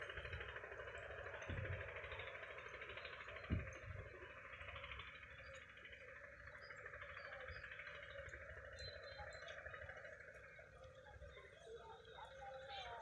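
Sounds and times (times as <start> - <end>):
low uneven rumble: 0.0 - 13.0.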